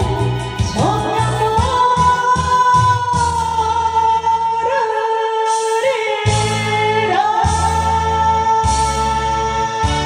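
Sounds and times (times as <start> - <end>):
instrumental accompaniment: 0.0 - 4.6
woman singing into a microphone: 0.0 - 10.0.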